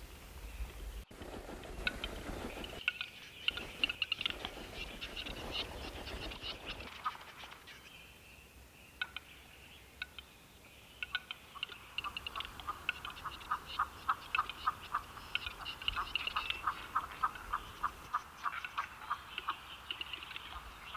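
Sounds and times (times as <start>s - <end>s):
bird dry clicks: 1.8s - 5.6s, 9.0s - 9.3s, 10.0s - 10.3s, 11.0s - 17.5s.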